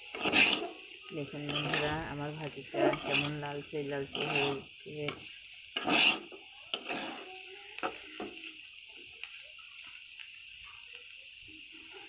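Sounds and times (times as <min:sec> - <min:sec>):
spatula scraping and tapping pan: 0:00.0 - 0:00.8, 0:01.4 - 0:09.3
potatoes sizzling in oil: 0:00.0 - 0:12.0.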